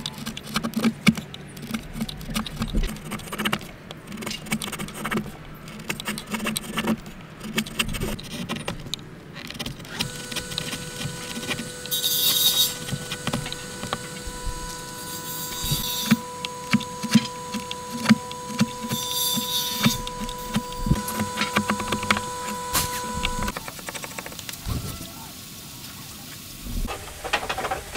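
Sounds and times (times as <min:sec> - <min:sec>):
chisel slicing shavings: 0:00.0 - 0:23.6
faint steady hum: 0:08.8 - 0:23.6.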